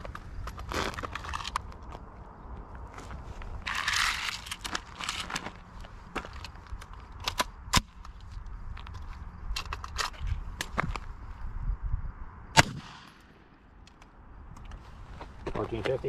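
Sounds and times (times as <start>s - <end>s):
footsteps on gravel: 0.0s - 7.1s
handling noise: 0.0s - 11.1s.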